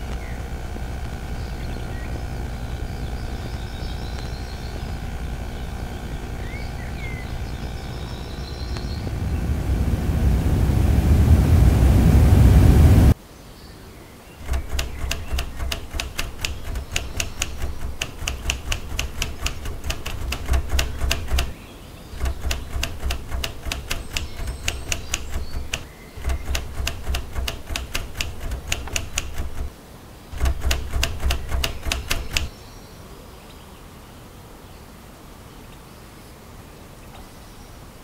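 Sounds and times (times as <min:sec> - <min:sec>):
typewriter keys clacking: 0:14.4 - 0:21.6, 0:22.2 - 0:29.7, 0:30.4 - 0:32.5.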